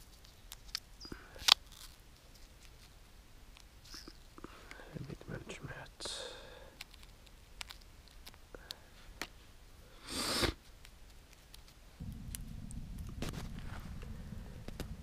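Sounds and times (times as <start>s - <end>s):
steady low rumble: 12.0s - 15.0s.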